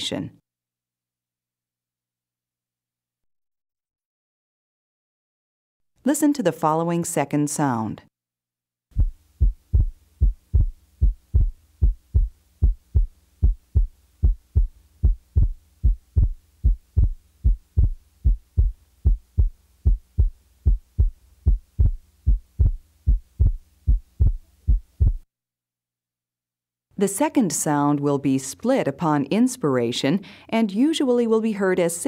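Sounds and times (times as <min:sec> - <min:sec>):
heartbeat through stethoscope: 0:08.9 - 0:25.2
faint low hum: 0:09.0 - 0:25.2.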